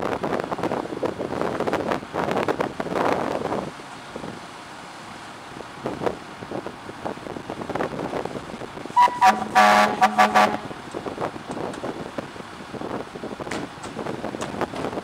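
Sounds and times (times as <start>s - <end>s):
short high beeps: 9.0s - 10.5s
vehicle horn: 9.0s - 10.8s.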